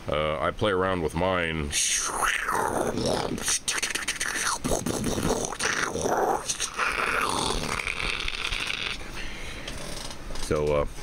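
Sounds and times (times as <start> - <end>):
man making spaceship noises: 1.7 - 9.0.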